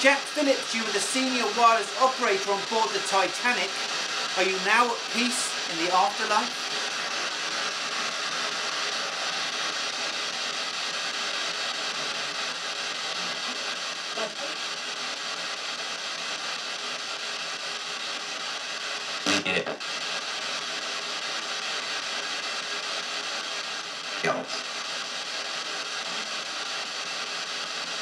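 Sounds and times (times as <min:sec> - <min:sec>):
radio broadcast fragments: 0:00.0 - 0:15.9, 0:18.5 - 0:20.5, 0:23.8 - 0:25.2
radio static hissing: 0:00.0 - 0:28.0.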